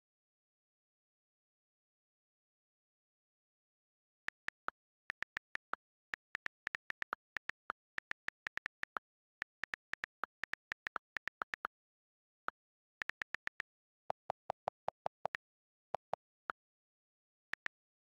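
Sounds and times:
phone keyboard key clicks: 4.3s - 11.7s.

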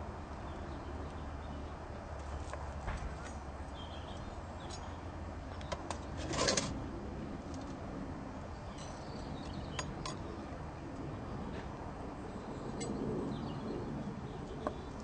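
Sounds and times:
steady low rumble: 0.0s - 15.0s
rustle or scrape: 6.1s - 6.8s.

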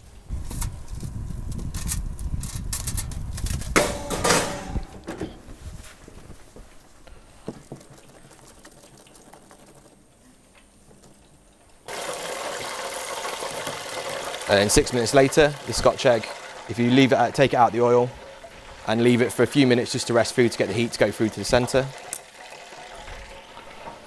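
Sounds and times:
sharp knocks: 3.8s - 5.4s
hot oil sizzling: 11.9s - 24.0s.

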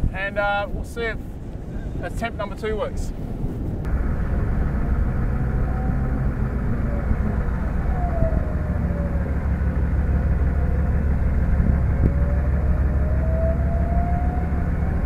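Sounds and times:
engine rumbling: 1.1s - 15.0s
winch whining under load: 3.9s - 15.0s.

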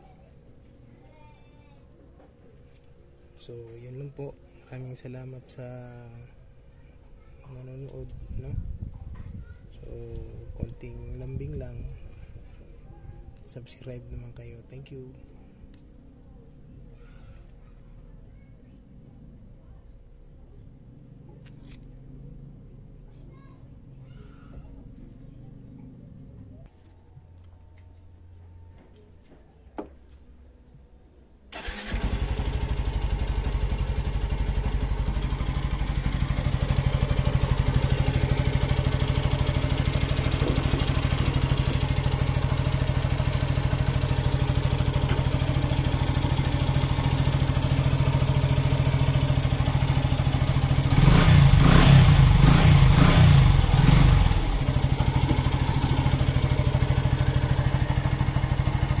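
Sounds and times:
motorcycle engine idling: 31.5s - 59.0s
motorcycle engine revving: 31.5s - 59.0s.

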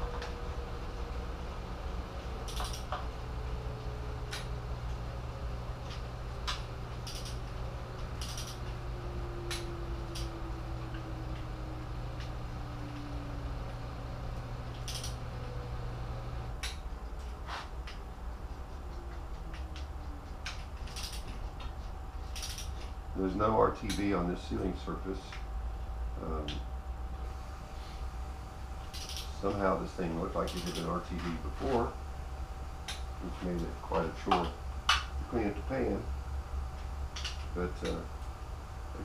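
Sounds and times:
steady low hum: 0.0s - 39.0s
torque wrench clicking: 2.4s - 3.0s, 6.5s - 7.4s, 8.1s - 8.8s, 9.5s - 10.4s, 14.7s - 15.2s, 19.5s - 21.4s, 22.3s - 22.8s, 28.9s - 29.3s, 30.5s - 30.9s.

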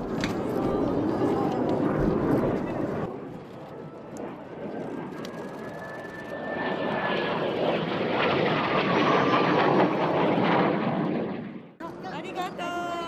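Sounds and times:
jet flying past roaring: 0.0s - 12.2s
thin jet whine: 1.6s - 11.0s.

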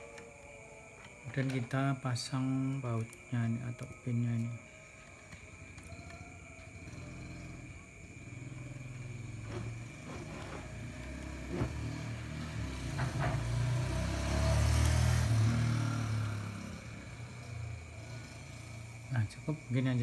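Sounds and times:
engine rumble of passing vehicle: 5.8s - 20.0s.

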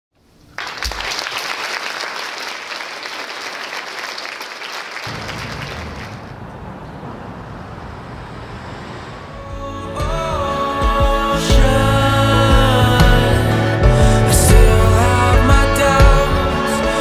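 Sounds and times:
audience applauding: 0.4s - 6.5s
low rumble: 5.1s - 9.8s.

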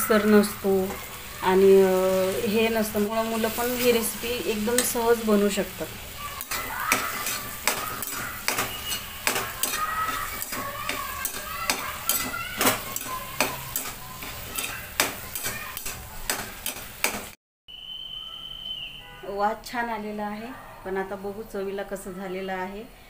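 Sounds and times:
food sizzling in oil: 0.0s - 17.4s
metal spatula scraping pan: 6.4s - 17.3s.

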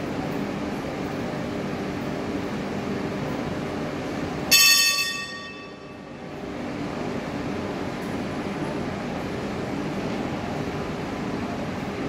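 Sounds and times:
tram humming: 0.0s - 12.0s.

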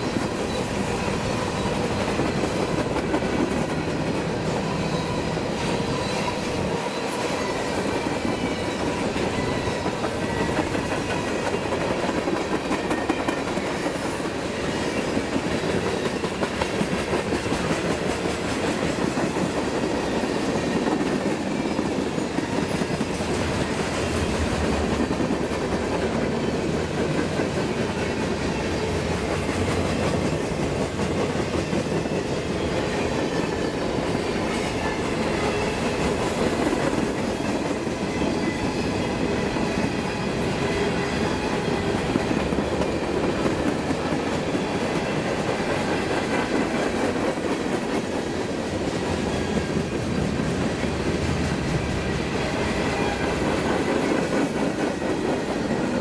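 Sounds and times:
freight train rolling past: 0.0s - 56.0s.

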